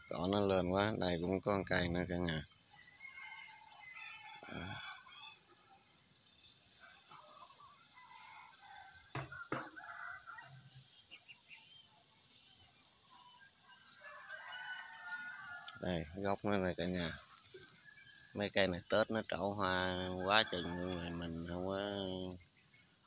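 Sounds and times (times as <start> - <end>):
birds chirping: 0.0 - 23.0
insects calling: 0.0 - 23.0
soft knocks: 9.1 - 9.8.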